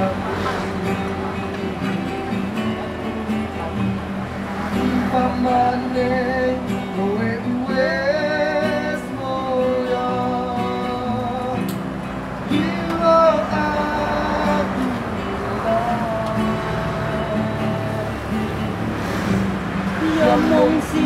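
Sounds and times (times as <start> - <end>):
acoustic guitar chords: 0.0 - 21.0
person singing: 4.6 - 11.8, 12.4 - 18.6, 19.9 - 21.0.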